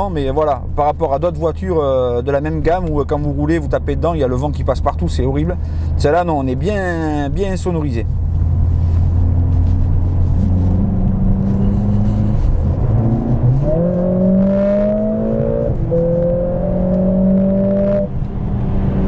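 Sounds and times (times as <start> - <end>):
car engine accelerating hard: 8.1 - 19.0.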